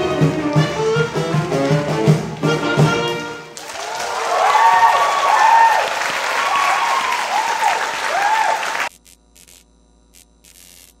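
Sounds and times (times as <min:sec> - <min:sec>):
audience applauding: 0:00.0 - 0:08.9
whoops: 0:03.6 - 0:08.9.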